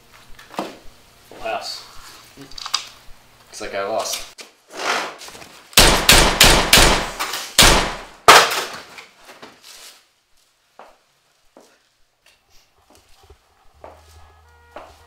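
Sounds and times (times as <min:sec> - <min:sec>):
loud sharp bangs: 0:05.8 - 0:08.6.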